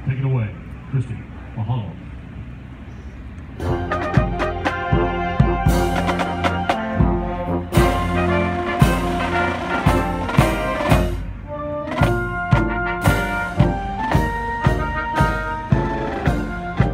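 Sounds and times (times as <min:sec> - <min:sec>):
marching band playing: 0:03.6 - 0:16.9
steady drum beat: 0:03.6 - 0:16.9.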